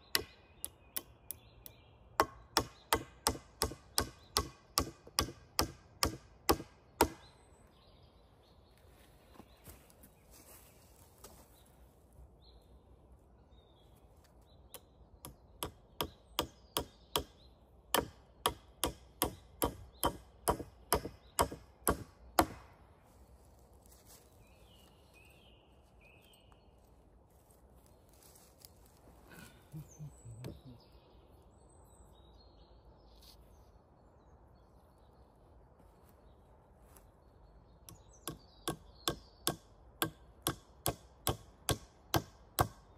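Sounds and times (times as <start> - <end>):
axe chopping wood: 2.2 - 7.3, 17.9 - 22.8.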